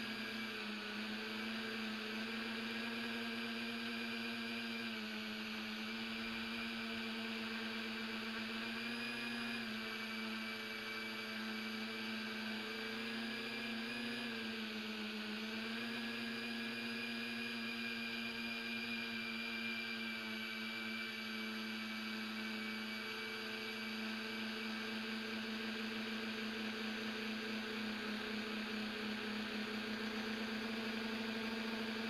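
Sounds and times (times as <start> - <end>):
electric motors and propellers whining: 0.0 - 32.0.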